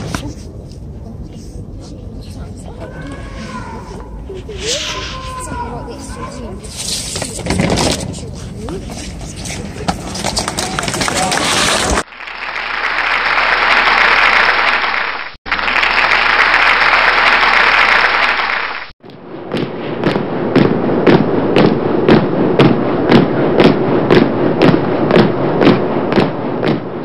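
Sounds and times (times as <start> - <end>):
even hissing noise: 3.2 - 7.1
regular sharp thumps: 19.0 - 27.0.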